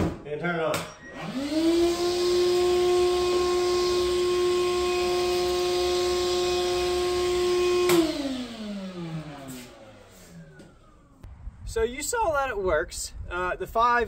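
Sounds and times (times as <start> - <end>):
shop vacuum motor whining: 1.0 - 11.3.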